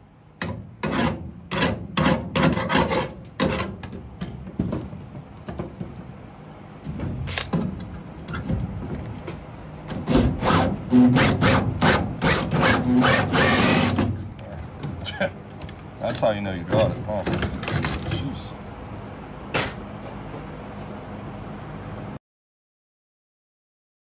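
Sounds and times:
hand tool scraping metal: 0:00.8 - 0:03.8
drill whirring against metal: 0:10.2 - 0:14.1.

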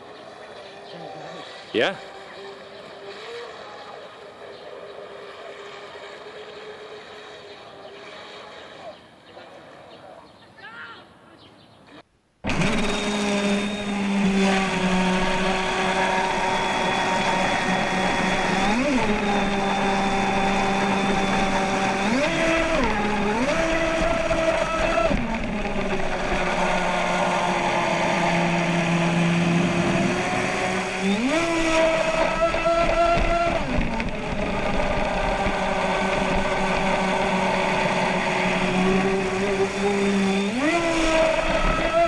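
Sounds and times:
electric motor whining: 0:12.4 - 0:42.0.

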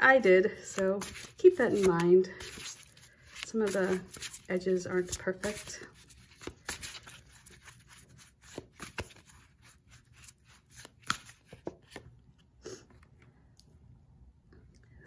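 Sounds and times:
cards shuffling: 0:00.2 - 0:12.4
cards snapping together: 0:00.8 - 0:04.4, 0:05.0 - 0:07.7, 0:08.4 - 0:09.4, 0:10.6 - 0:12.1.

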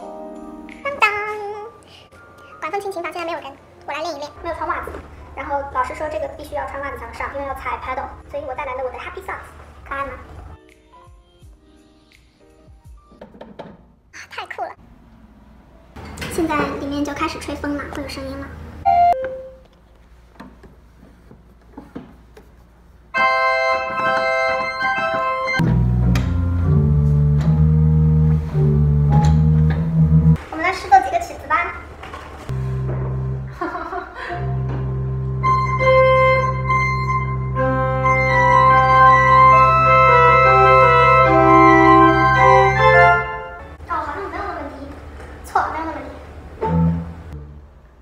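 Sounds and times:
organ blower hum: 0:23.1 - 0:30.4, 0:32.5 - 0:43.8
deep organ bass notes: 0:23.2 - 0:30.4, 0:32.6 - 0:33.8, 0:34.4 - 0:43.7, 0:46.6 - 0:47.8
organ chord held: 0:23.2 - 0:30.4, 0:32.6 - 0:43.7.

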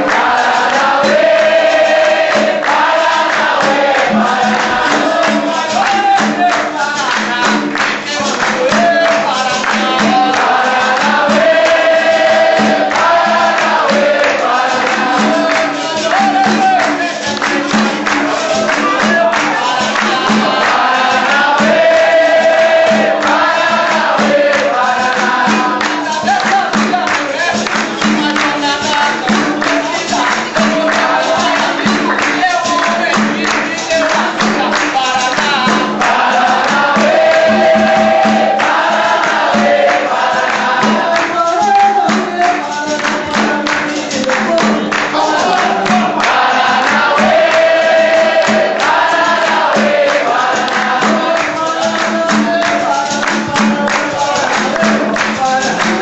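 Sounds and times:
berimbaus with percussion: 0:00.0 - 0:56.0
group of voices singing: 0:00.0 - 0:56.0.

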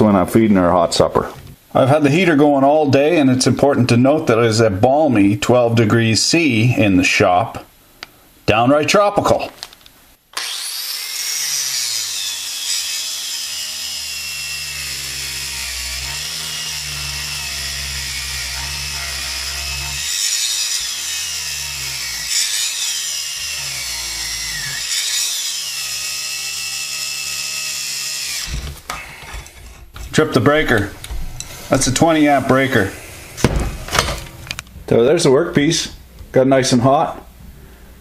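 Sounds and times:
angle grinder motor whine: 0:10.4 - 0:29.8.

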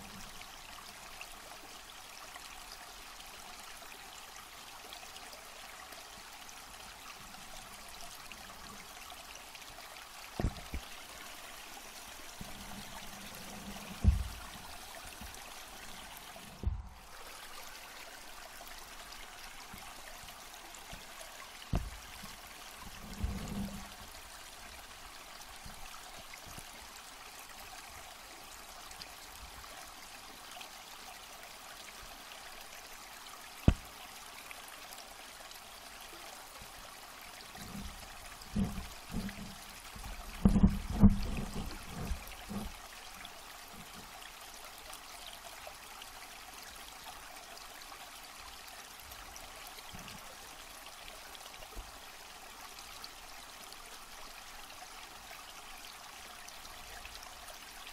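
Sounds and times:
dull low knocks: 0:10.4 - 0:10.9, 0:12.4 - 0:15.4, 0:16.5 - 0:17.0, 0:21.7 - 0:22.3, 0:37.6 - 0:42.8.

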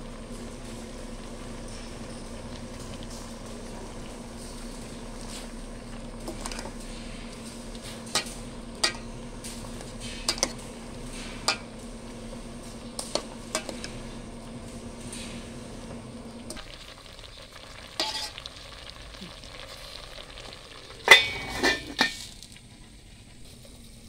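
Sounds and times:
steady low hum: 0:00.0 - 0:24.0
metal ladle clinking on pot: 0:08.0 - 0:09.1, 0:21.0 - 0:22.2.

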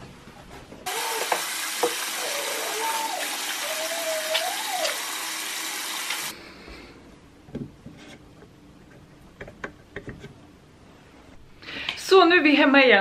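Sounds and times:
tap water running into sink: 0:00.9 - 0:06.3.

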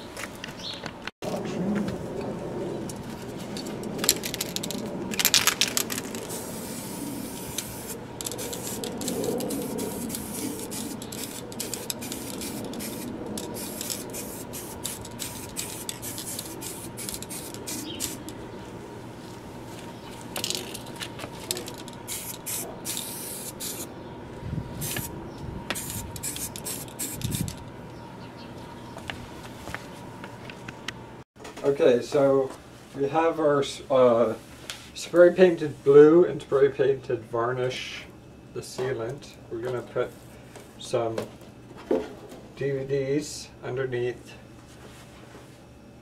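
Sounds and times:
spray can hissing: 0:04.0 - 0:18.3, 0:21.4 - 0:23.9, 0:24.8 - 0:25.1, 0:25.7 - 0:27.6.

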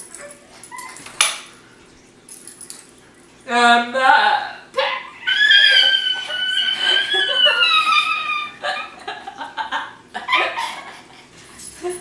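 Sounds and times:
women laughing: 0:05.0 - 0:12.0.

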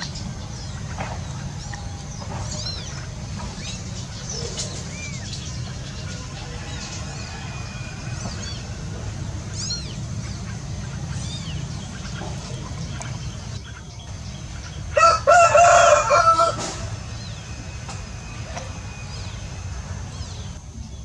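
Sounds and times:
low background rumble: 0:00.0 - 0:21.0
rooster crowing: 0:06.4 - 0:08.8, 0:14.9 - 0:17.1.

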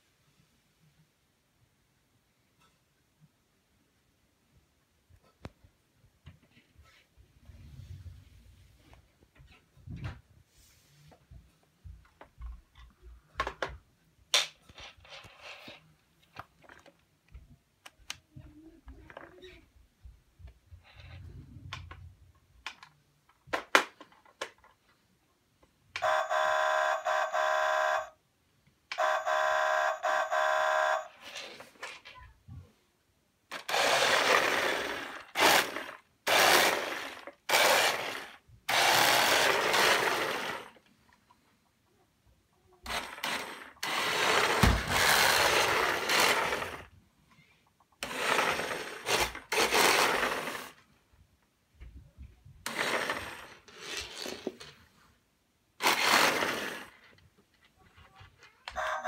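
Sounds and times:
toy truck electronic horn: 0:26.0 - 0:28.2, 0:28.9 - 0:31.2, 0:58.7 - 0:59.0
toy electric motor and gears: 0:33.5 - 0:40.9, 0:42.8 - 0:46.9, 0:48.0 - 0:50.8, 0:52.6 - 0:54.8, 0:55.8 - 0:57.2.

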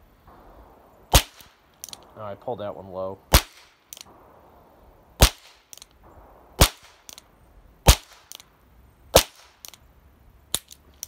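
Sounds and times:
revolver gunshots: 0:00.3 - 0:02.4, 0:03.2 - 0:08.4.

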